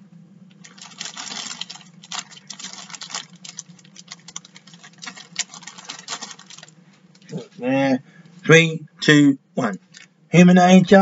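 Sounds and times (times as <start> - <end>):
low electrical hum: 0.0 - 11.0
plastic packaging crinkling: 0.5 - 7.4.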